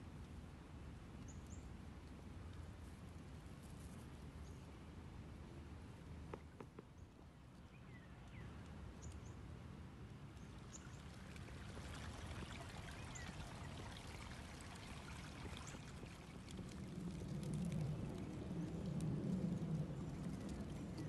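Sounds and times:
water flowing and trickling: 10.5s - 18.2s.

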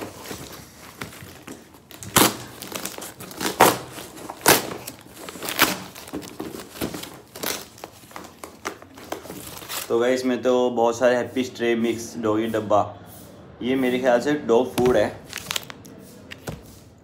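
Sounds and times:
packaging crinkling: 0.0s - 9.9s, 14.8s - 16.6s
packaging ripping: 0.0s - 9.9s, 15.2s - 16.5s.

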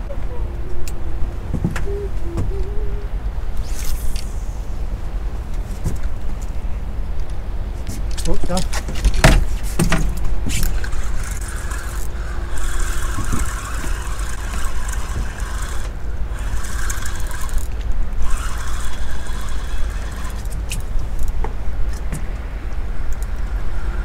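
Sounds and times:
fishing reel whirring: 3.6s - 4.9s, 10.6s - 20.9s.

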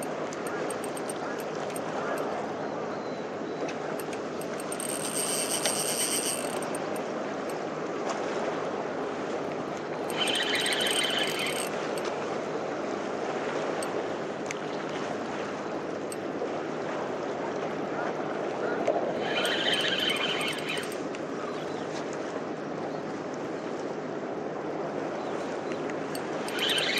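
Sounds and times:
fishing reel drag buzzing: 0.0s - 2.2s, 4.0s - 7.6s, 10.0s - 12.1s, 19.2s - 21.0s, 26.1s - 26.9s.

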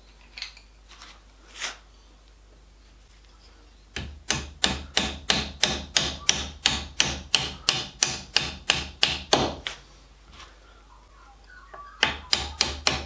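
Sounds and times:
hammer tapping pencil into wood: 4.0s - 9.6s, 12.0s - 13.0s.

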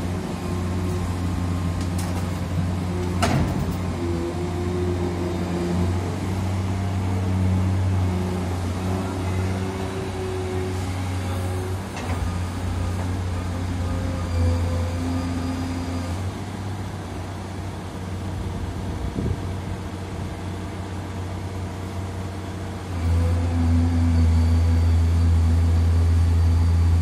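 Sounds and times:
excavator diesel engine: 0.0s - 27.0s.

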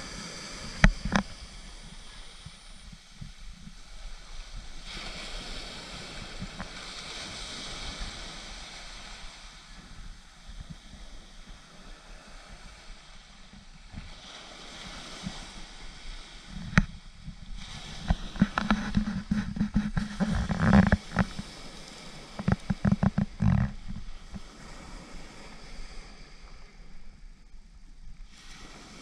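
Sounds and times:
wind gusting across microphone: 0.0s - 29.0s.

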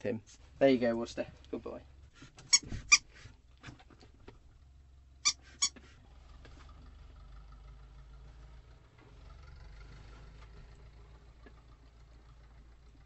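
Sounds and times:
rubber toy squeaking: 2.4s - 3.1s, 5.2s - 5.9s.

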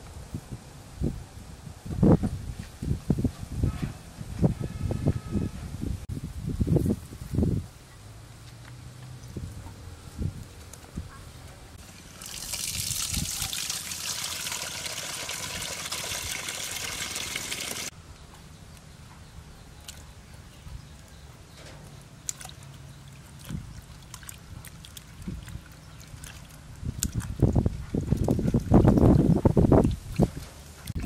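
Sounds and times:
water splashing: 11.8s - 17.9s, 22.2s - 31.0s
water running into metal bowl: 11.9s - 17.9s.

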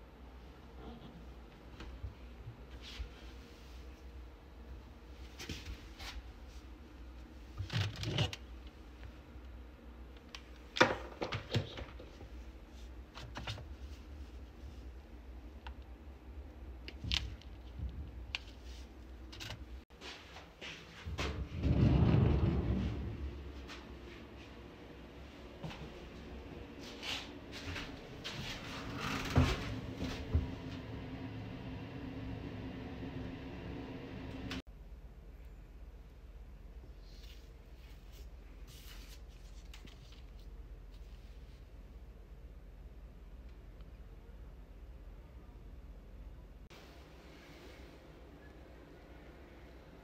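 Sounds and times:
objects handled on a shelf: 10.2s - 14.9s
steady low hum: 20.6s - 50.0s.

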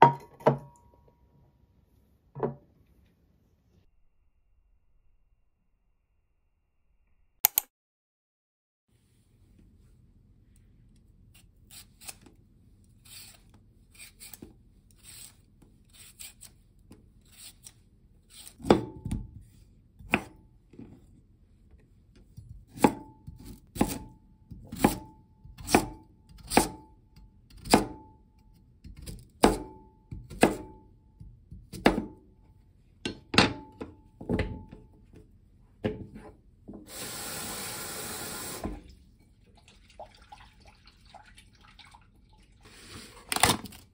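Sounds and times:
vegetable peeler scraping: 11.3s - 12.4s, 13.0s - 16.6s, 17.2s - 18.6s
knife chopping on wooden board: 18.5s - 19.4s, 20.0s - 20.4s, 22.7s - 26.9s, 28.9s - 30.8s.

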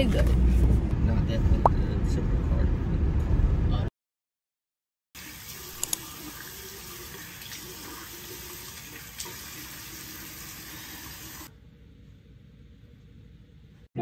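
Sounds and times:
bathroom tap running: 5.2s - 11.5s.

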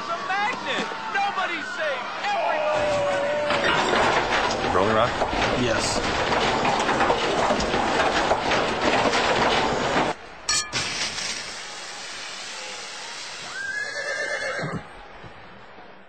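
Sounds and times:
dense loud clattering: 2.8s - 11.3s
beer foam fizzing: 10.8s - 14.0s.

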